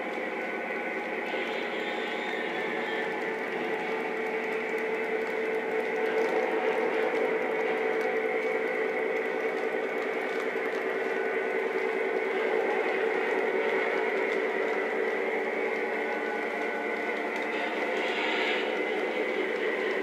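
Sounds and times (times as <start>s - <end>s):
model train cars rumbling on track: 0.0s - 20.0s.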